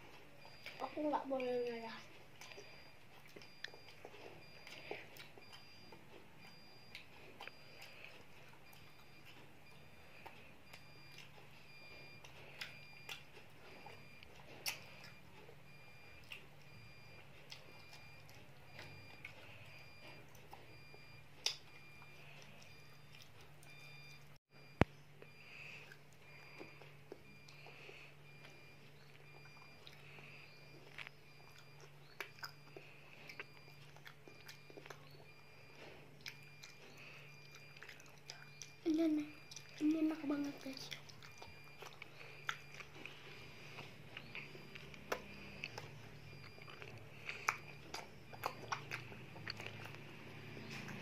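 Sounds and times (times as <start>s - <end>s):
child chewing: 0.0s - 51.0s
low steady hum: 0.0s - 51.0s
mouth clicks and smacks: 12.2s - 16.8s, 21.4s - 21.8s, 28.4s - 35.4s, 36.2s - 38.8s, 40.8s - 43.2s, 43.8s - 50.0s.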